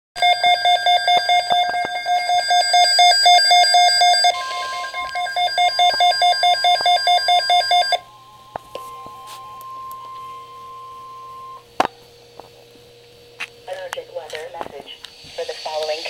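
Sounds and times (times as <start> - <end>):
steady alert tone: 2.0 - 8.1.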